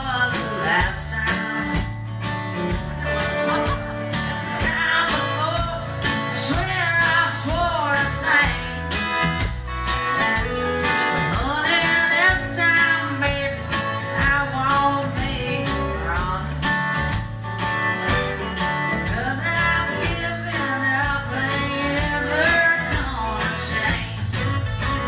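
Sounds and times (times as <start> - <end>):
woman singing: 0.0 - 2.0, 4.4 - 9.0, 10.8 - 17.1, 18.9 - 25.0
drums: 0.0 - 25.0
electric guitar: 0.0 - 25.0
strummed acoustic guitar: 0.0 - 25.0.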